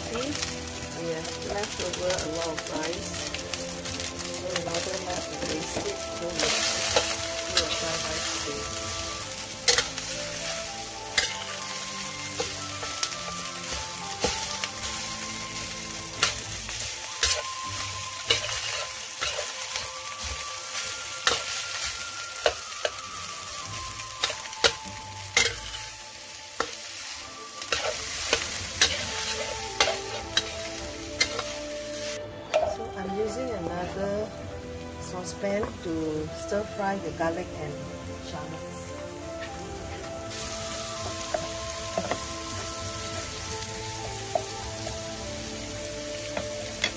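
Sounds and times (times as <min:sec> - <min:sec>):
food sizzling in a wok: 0:00.0 - 0:46.9
metal spatula scraping a wok: 0:06.4 - 0:23.0, 0:25.4 - 0:25.8, 0:27.6 - 0:32.8.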